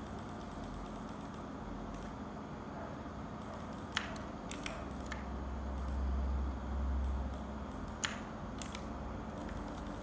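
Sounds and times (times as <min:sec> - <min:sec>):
steady low hum: 0:00.0 - 0:10.0
keyboard keystroke clicks: 0:03.4 - 0:06.0, 0:07.0 - 0:10.0.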